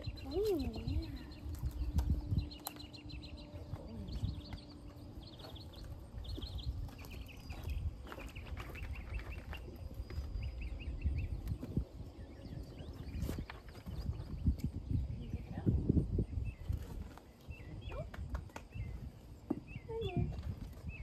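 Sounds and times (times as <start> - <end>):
horse hooves on concrete: 0.0 - 14.7
small birds chirping: 0.0 - 21.0.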